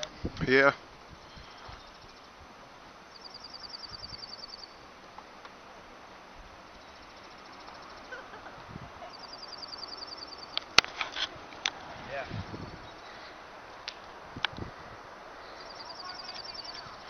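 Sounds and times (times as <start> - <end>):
steady outdoor hiss: 0.0 - 17.0
songbird trilling: 3.1 - 4.9, 6.7 - 8.4, 9.0 - 10.8, 12.5 - 13.4, 15.4 - 17.0.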